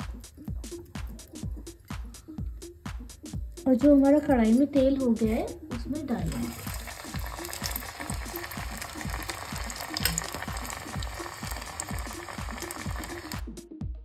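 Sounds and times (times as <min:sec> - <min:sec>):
oil sizzling and bubbling: 0:00.0 - 0:02.3, 0:05.6 - 0:13.5
electronic dance music: 0:05.2 - 0:13.8.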